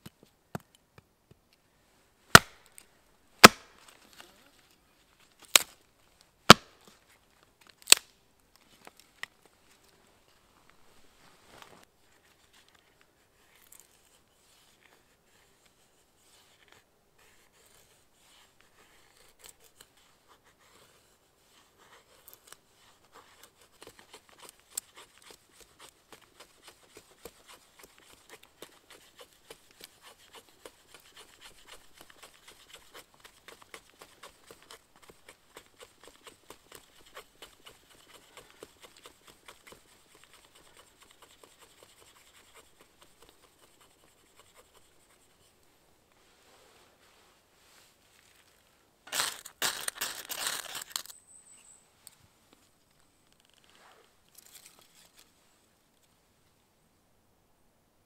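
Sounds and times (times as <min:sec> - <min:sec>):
faint handling sounds: 0:03.7 - 0:56.6
blade scraping wood: 0:22.0 - 0:45.5.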